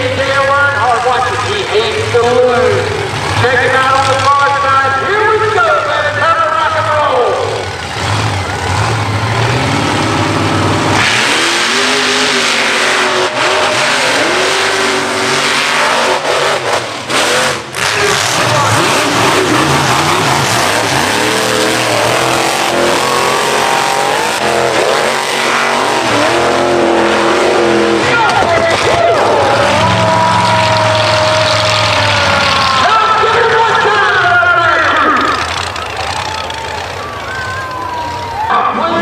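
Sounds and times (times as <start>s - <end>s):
truck engine revving: 0.0s - 39.0s
harsh rushing noise: 7.5s - 37.6s.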